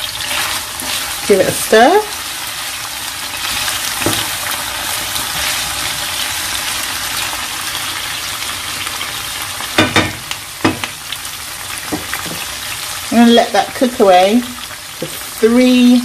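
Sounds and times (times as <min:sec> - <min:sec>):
vegetables sizzling in hot oil: 0:00.0 - 0:16.0
spoon knocking against pan: 0:09.8 - 0:11.0.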